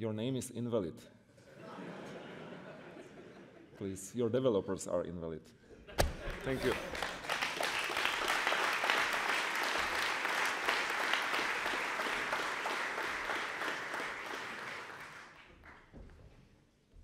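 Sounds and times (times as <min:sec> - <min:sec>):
audience applauding: 0:06.1 - 0:15.9.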